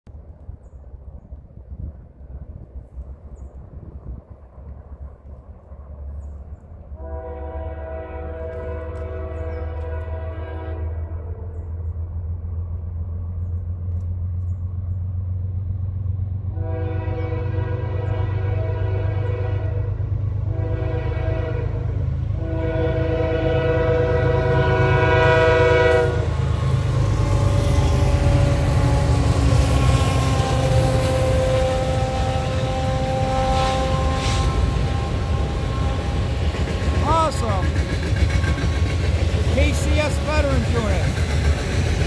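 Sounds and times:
locomotive rumbling past: 0.1s - 42.0s
locomotive air horn blasts: 7.0s - 11.5s, 16.5s - 21.8s, 22.4s - 26.4s, 27.0s - 29.2s, 30.2s - 36.5s.

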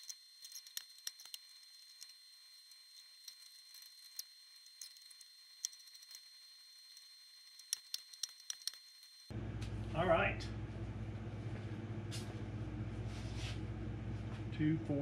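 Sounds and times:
small metal parts clicking: 0.0s - 9.3s.

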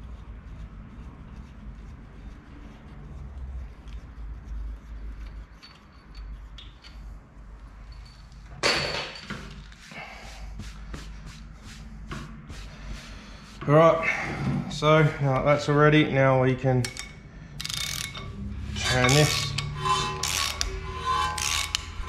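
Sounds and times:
tools clicking and knocking: 5.6s - 7.1s, 16.8s - 22.0s.

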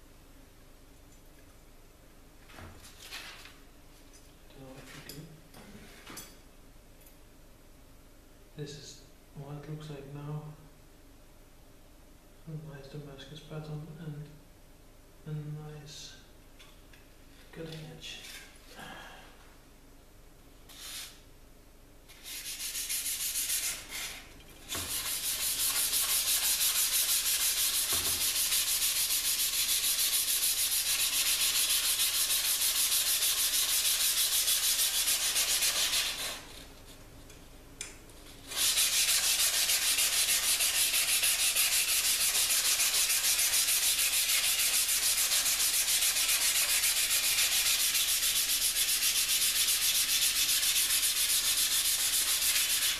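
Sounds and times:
sandpaper rubbing on steel blade: 22.1s - 36.6s, 38.4s - 52.9s.

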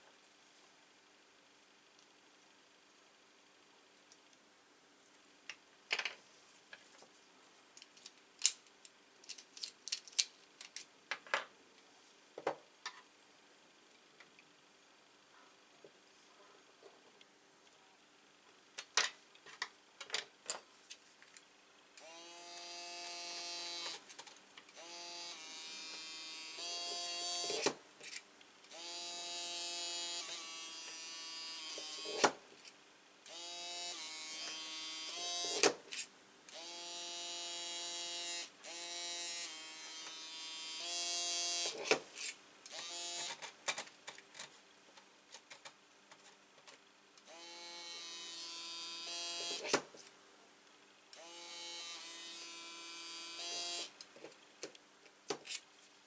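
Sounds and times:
electric screwdriver whirring: 42.7s - 43.4s, 47.3s - 49.7s, 51.2s - 53.9s.

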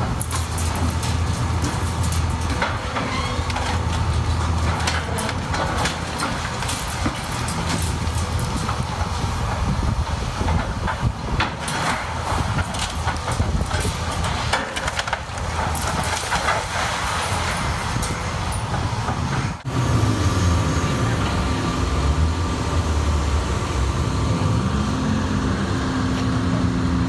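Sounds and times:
debris clattering and crunching: 0.0s - 19.7s
excavator engine and hydraulics: 0.0s - 27.0s.

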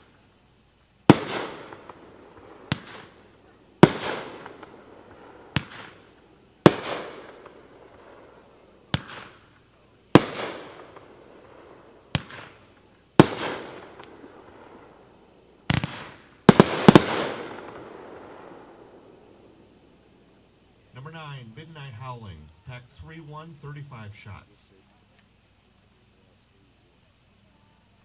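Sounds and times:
fireworks launching and bursting: 0.0s - 25.4s.

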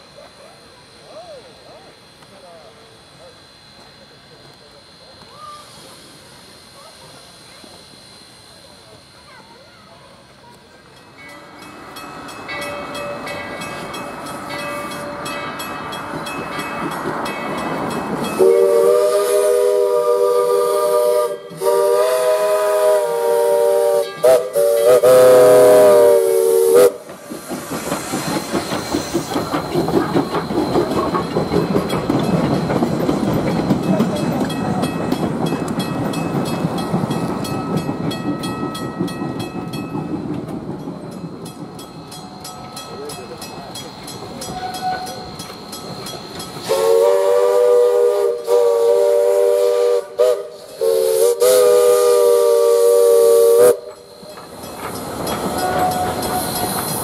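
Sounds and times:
steam locomotive chuffing: 0.0s - 57.0s
crossing signal bell ringing: 10.9s - 18.8s, 30.8s - 46.8s, 53.8s - 57.0s
steam whistle chord: 18.3s - 27.0s, 46.6s - 54.1s.

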